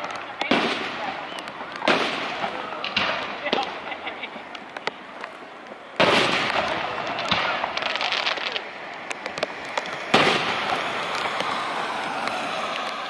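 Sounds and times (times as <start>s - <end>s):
fast sharp firework pops: 0.0s - 4.0s, 6.0s - 13.0s
firework booms: 0.4s - 4.5s, 6.0s - 8.6s, 9.2s - 12.2s.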